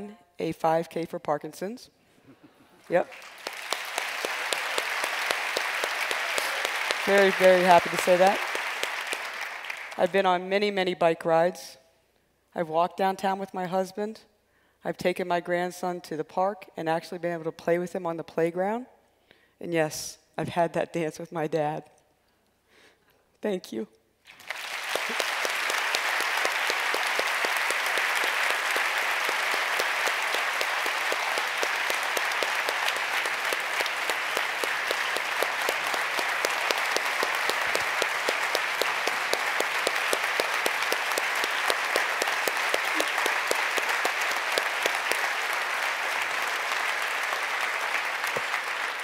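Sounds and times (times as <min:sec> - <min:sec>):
audience applauding: 0:02.8 - 0:10.3, 0:24.3 - 0:49.0.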